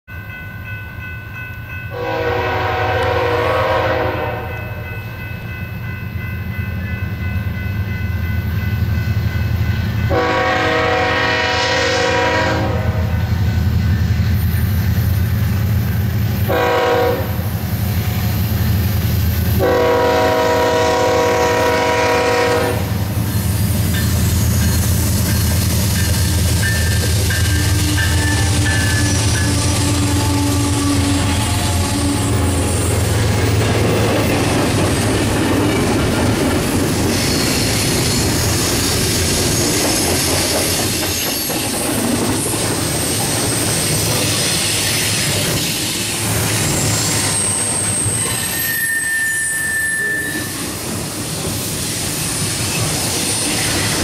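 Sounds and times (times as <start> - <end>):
locomotive air horn blasts: 1.9 - 4.8, 10.1 - 13.3, 16.4 - 17.5, 19.5 - 23.0, 27.6 - 32.8
diesel locomotive rumble: 9.0 - 48.6.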